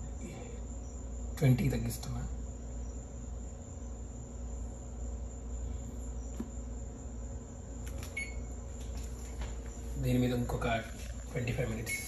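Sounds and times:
faint high whine: 0.0s - 12.0s
oven keypad beep: 8.1s - 8.6s.

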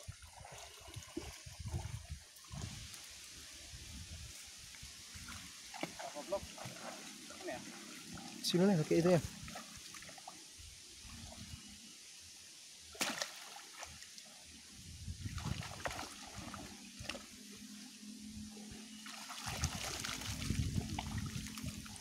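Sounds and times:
muddy water splashing: 0.0s - 10.4s, 12.9s - 14.3s, 15.1s - 17.4s, 18.9s - 22.0s
water pouring through net: 19.0s - 22.0s.

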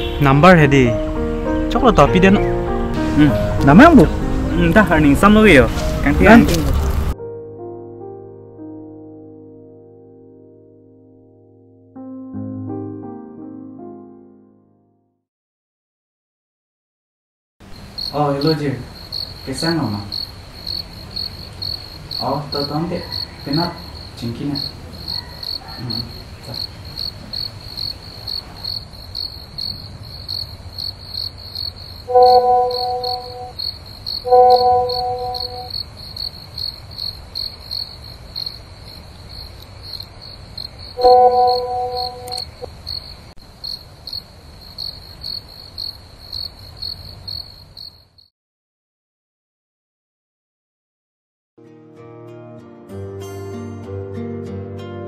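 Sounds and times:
crickets chirping: 17.6s - 48.3s
plucked guitar melody: 32.1s - 33.5s, 34.3s - 35.7s, 41.0s - 42.4s, 51.6s - 55.0s
electronic tone: 32.1s - 33.6s, 34.3s - 35.7s, 41.0s - 42.6s.

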